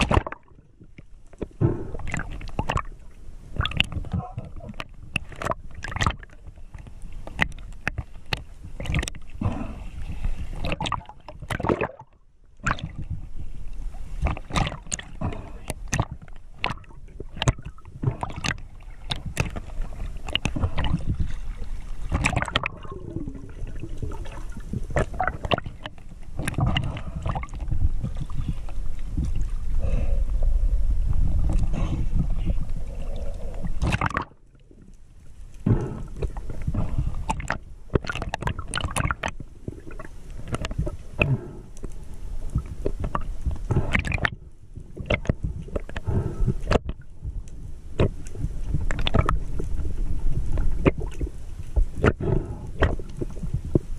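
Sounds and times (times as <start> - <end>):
knocks and splashes: 0.0 - 0.6, 1.4 - 2.9, 3.5 - 6.4, 10.6 - 13.2, 14.2 - 28.4, 33.8 - 34.4, 35.6 - 41.4, 45.0 - 46.0, 48.0 - 49.5
water sloshing and gurgling: 0.0 - 53.9.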